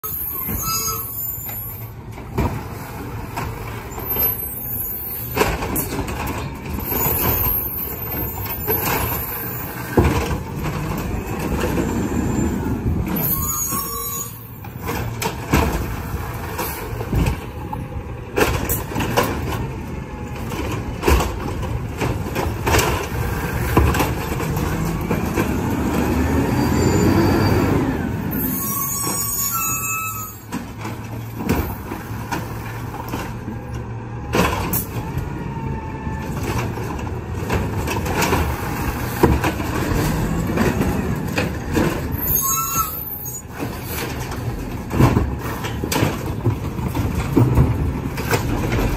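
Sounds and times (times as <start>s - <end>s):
truck engine and hydraulic arm: 0.0s - 48.9s
carts banging: 5.2s - 27.1s, 36.3s - 48.9s.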